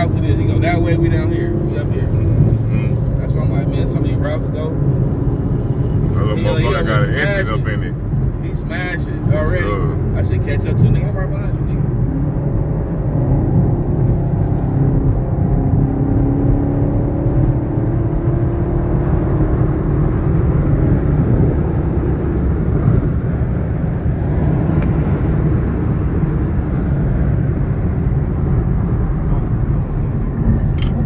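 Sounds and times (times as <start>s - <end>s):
car road and engine rumble: 0.0s - 31.0s.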